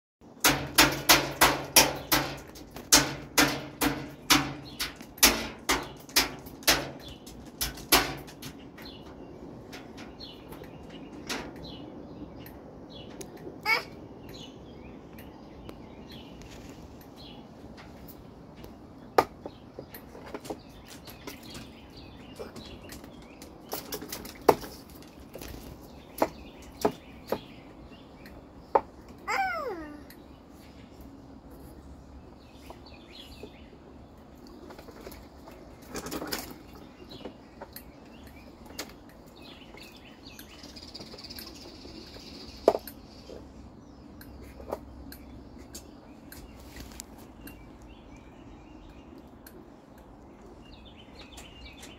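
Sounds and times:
object banging on metal mesh: 0:00.4 - 0:08.6.

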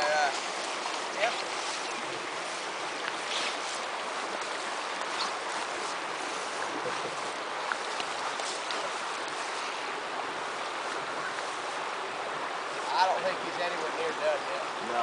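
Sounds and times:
stream water flowing: 0:00.0 - 0:15.0.

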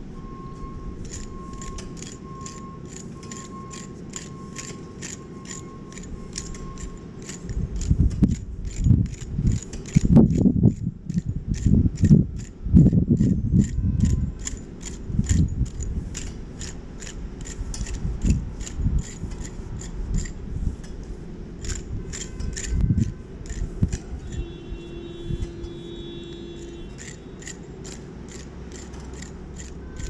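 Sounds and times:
steady hum: 0:00.0 - 0:30.0
trowel scraping soil: 0:01.1 - 0:24.6, 0:26.6 - 0:30.0
low rumbling wind gusts: 0:06.2 - 0:25.7.

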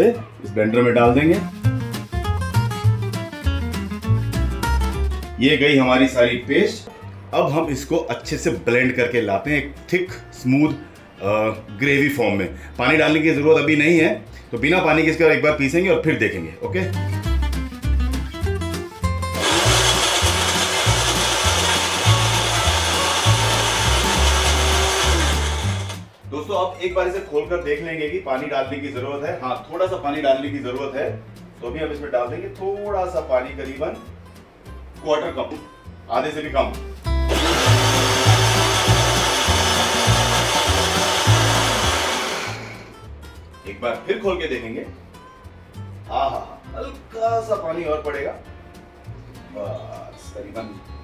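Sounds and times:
mixer grinder whirring: 0:19.4 - 0:26.1, 0:37.3 - 0:42.9.

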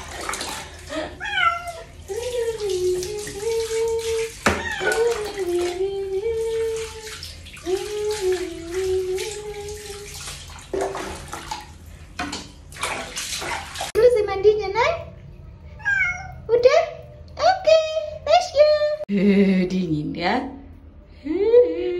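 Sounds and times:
water splashing on tile floor: 0:00.0 - 0:14.1
cat meowing: 0:01.2 - 0:01.9, 0:04.5 - 0:05.1, 0:15.7 - 0:16.5.

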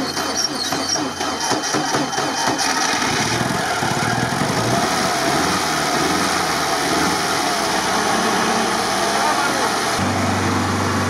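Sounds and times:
petrol engine running: 0:00.0 - 0:11.0.

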